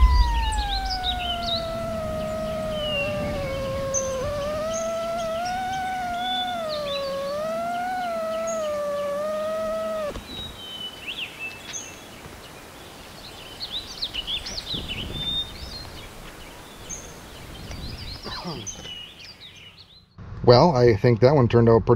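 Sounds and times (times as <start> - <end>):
drone motors whining: 0.0 - 10.4
birds chirping: 0.0 - 20.2.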